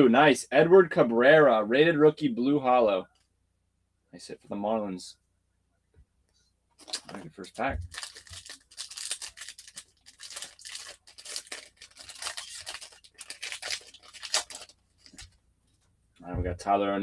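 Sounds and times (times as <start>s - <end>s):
foil wrapper tearing and crinkling: 6.8s - 7.2s, 7.9s - 15.4s.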